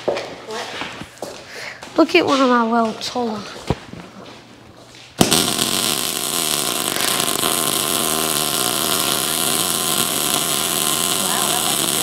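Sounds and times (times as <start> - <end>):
welding arc crackling and hissing: 5.2 - 12.0.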